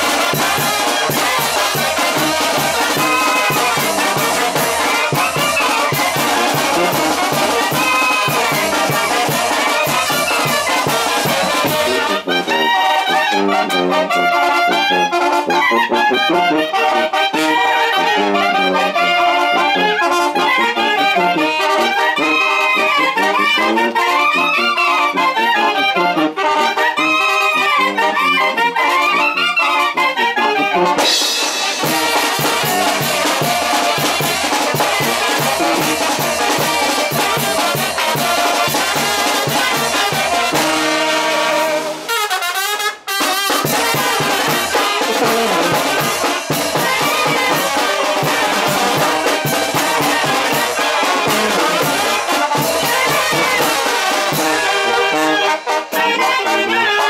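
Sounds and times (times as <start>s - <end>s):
brass band playing: 0.0s - 57.0s.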